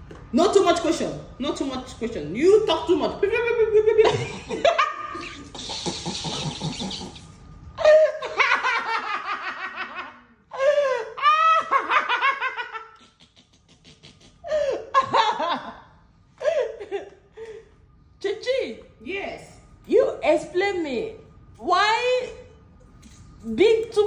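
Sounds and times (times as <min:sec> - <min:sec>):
hearty laughter: 0:03.7 - 0:17.2.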